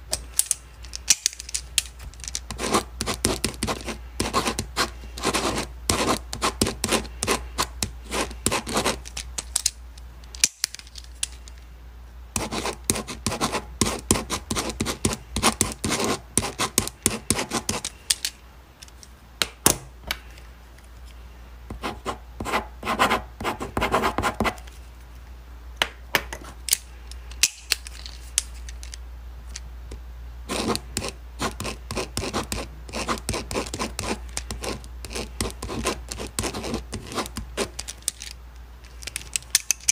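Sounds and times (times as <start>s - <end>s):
pen scratching on paper: 2.5s - 9.0s, 12.4s - 17.9s, 21.7s - 24.6s, 30.5s - 37.7s.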